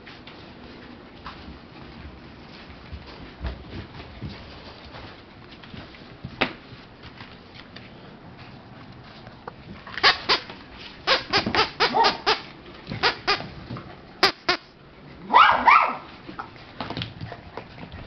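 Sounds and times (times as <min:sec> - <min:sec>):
puppy yelping: 0:11.2 - 0:12.5, 0:15.3 - 0:16.0
puppy barking in high yaps: 0:11.8 - 0:12.4, 0:15.2 - 0:16.1.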